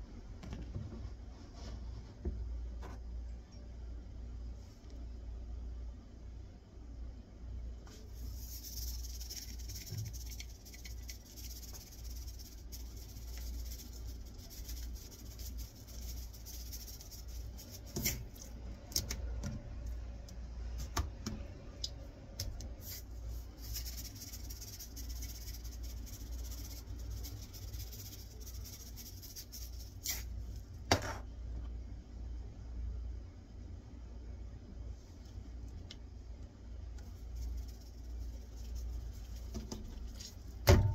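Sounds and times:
low steady hum: 0:00.0 - 0:40.9
seasoning granules hissing: 0:07.9 - 0:18.4, 0:22.8 - 0:30.4.

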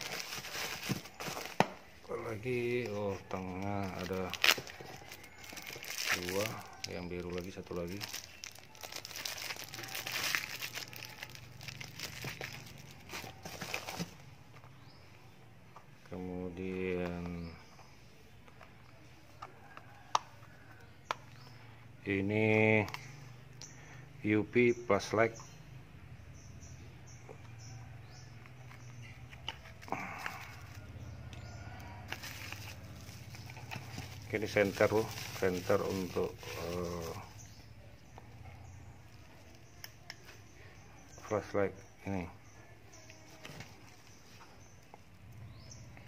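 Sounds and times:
plastic packaging crinkling: 0:00.0 - 0:01.7, 0:02.3 - 0:14.2, 0:32.1 - 0:37.6
rummaging through bubble wrap: 0:00.0 - 0:14.2, 0:29.7 - 0:30.8, 0:32.0 - 0:37.5.

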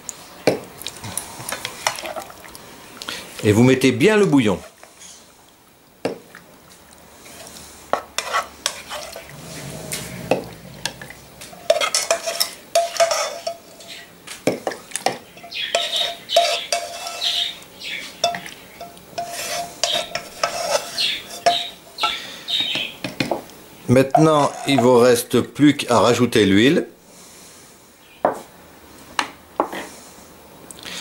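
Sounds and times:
plastic spoon scraping a wok: 0:07.3 - 0:14.0, 0:15.6 - 0:17.5, 0:19.2 - 0:21.7, 0:24.2 - 0:25.0.

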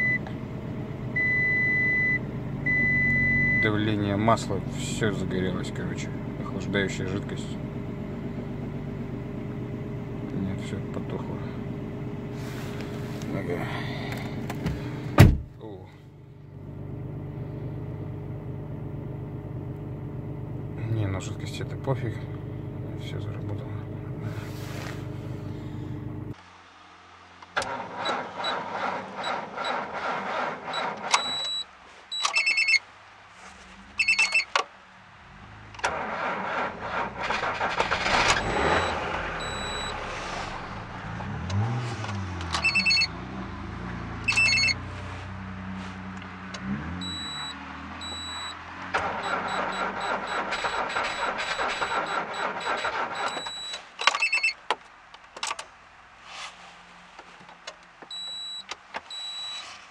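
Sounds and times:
car engine idling: 0:00.0 - 0:31.1, 0:34.7 - 0:53.4
dashboard warning chime: 0:01.2 - 0:03.8, 0:31.2 - 0:32.8, 0:38.7 - 0:40.0, 0:42.6 - 0:43.1, 0:44.3 - 0:44.8, 0:47.0 - 0:48.6, 0:52.0 - 0:54.5, 0:58.1 - 0:59.6
engine cranking by starter: 0:27.4 - 0:31.6, 0:35.7 - 0:43.1, 0:46.5 - 0:54.5.

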